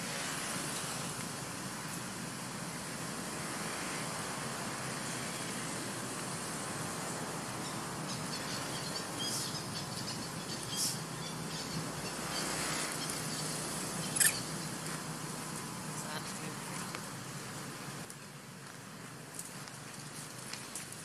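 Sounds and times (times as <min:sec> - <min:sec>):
steady outdoor hiss: 0:00.0 - 0:21.0
high-pitched animal squeaks: 0:14.0 - 0:14.5.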